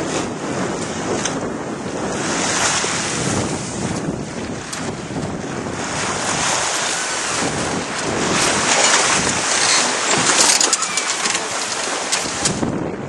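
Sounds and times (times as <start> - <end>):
water splashing along hull: 0.0 - 13.0
wind buffeting microphone: 0.0 - 13.0.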